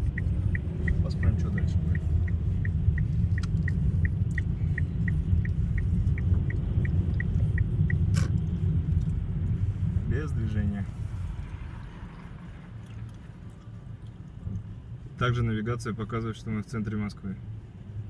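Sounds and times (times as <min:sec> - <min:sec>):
rapid high ticks: 0:00.0 - 0:09.2
car rumble inside cabin: 0:00.0 - 0:18.0.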